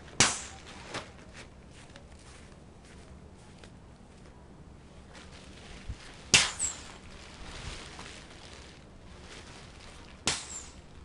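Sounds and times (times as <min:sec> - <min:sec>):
fabric rustling: 0:05.0 - 0:10.2
kite fabric snapping: 0:05.9 - 0:08.8.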